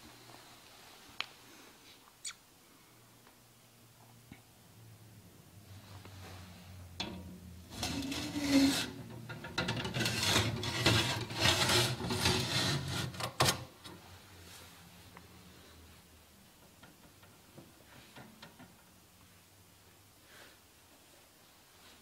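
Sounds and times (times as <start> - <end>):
glass door sliding and scraping: 7.1 - 13.7.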